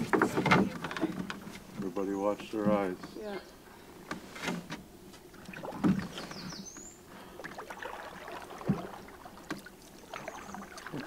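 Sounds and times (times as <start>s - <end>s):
paddle knocking on canoe: 0.0s - 3.2s, 7.4s - 11.0s
paddle strokes in water: 3.9s - 11.0s.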